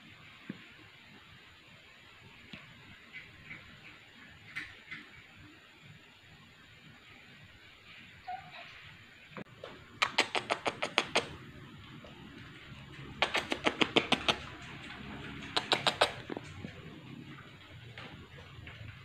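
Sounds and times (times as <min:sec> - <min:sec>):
lip-smacking kisses: 0:10.0 - 0:11.4, 0:13.2 - 0:14.6, 0:15.4 - 0:16.4.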